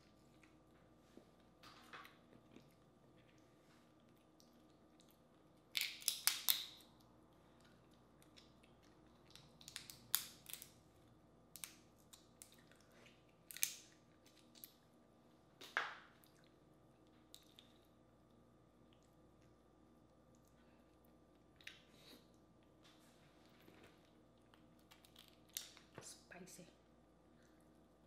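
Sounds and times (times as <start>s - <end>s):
shells cracking and peeling: 5.6s - 7.1s, 9.1s - 10.8s, 11.5s - 12.7s, 13.4s - 14.8s, 24.6s - 25.9s.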